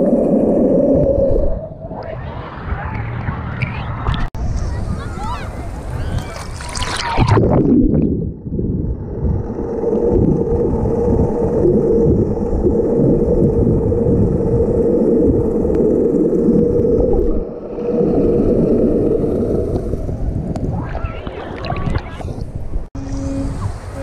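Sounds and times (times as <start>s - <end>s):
water rushing underwater: 0.0s - 2.6s, 5.9s - 24.0s
muffled underwater boat engine drone: 8.3s - 20.3s, 21.2s - 24.0s.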